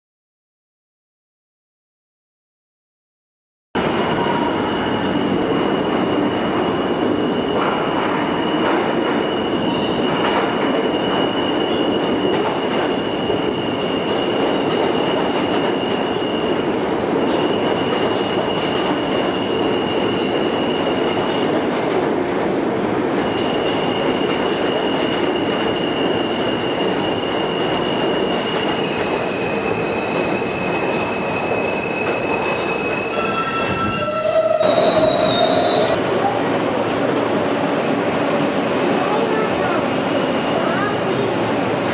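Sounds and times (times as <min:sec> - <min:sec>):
train wheels rumbling on rail: 0:03.8 - 0:41.9
high wheel squeal: 0:03.9 - 0:21.4, 0:23.3 - 0:36.0.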